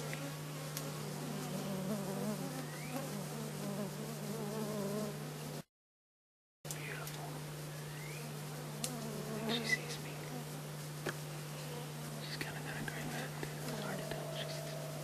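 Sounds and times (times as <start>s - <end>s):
insects buzzing: 0.0s - 5.7s, 6.7s - 15.0s
steady low hum: 6.7s - 15.0s.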